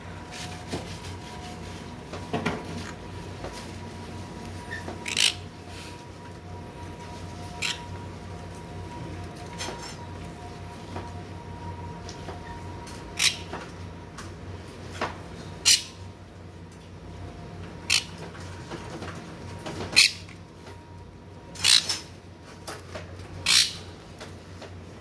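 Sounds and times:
steady low hum: 0.0 - 25.0
parrots squawking: 4.7 - 5.5, 7.5 - 8.0, 13.1 - 13.5, 15.6 - 16.0, 17.9 - 18.2, 19.9 - 20.4, 21.6 - 22.0, 23.4 - 23.9.

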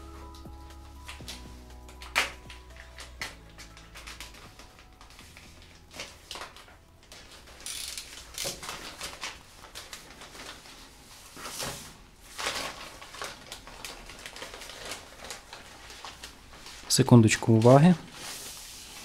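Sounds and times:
plastic bag crinkling: 0.0 - 19.0
knife slitting plastic bag: 5.3 - 19.0.

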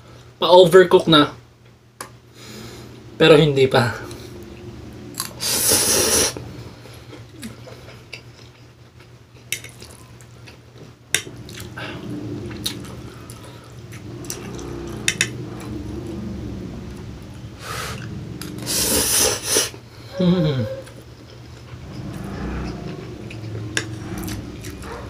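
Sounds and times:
noodles slurping: 5.1 - 8.5, 17.2 - 19.9
chewing and wet mouth sounds: 7.1 - 15.8, 20.8 - 25.0.

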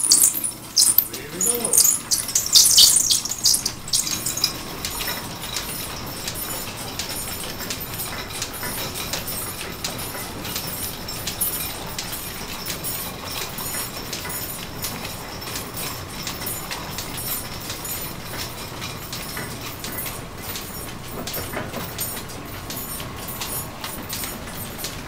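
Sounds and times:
regular clicking: 0.0 - 4.6
belts turning on pulleys: 0.0 - 6.5.

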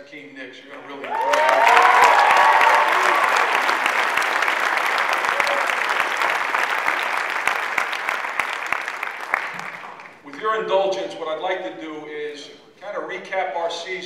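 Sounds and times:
audience applauding: 0.8 - 10.3.

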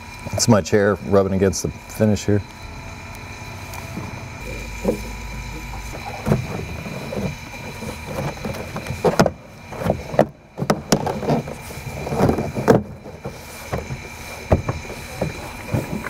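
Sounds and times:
plastic panel scraping and knocking: 4.8 - 16.0.

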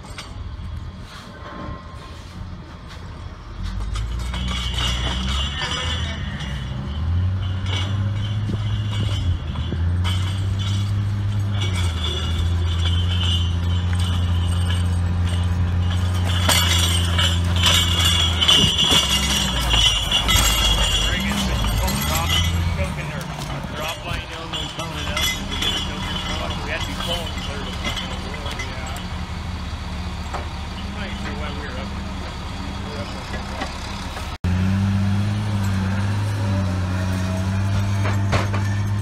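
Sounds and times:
diesel engine working under load: 0.0 - 39.0
metallic clinking of cables: 3.6 - 34.4.

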